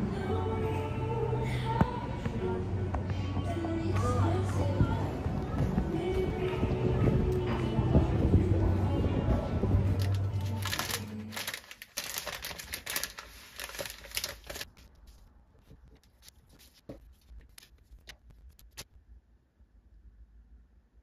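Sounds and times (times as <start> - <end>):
plastic wrapping crinkling: 10.0 - 18.8.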